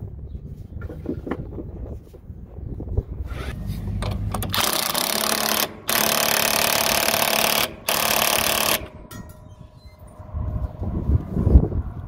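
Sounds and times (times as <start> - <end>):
impact driver hammering: 4.0 - 9.4.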